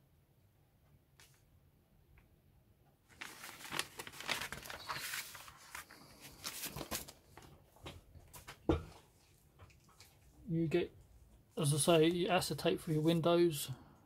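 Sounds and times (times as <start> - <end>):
paper booklet rustling: 3.1 - 8.6.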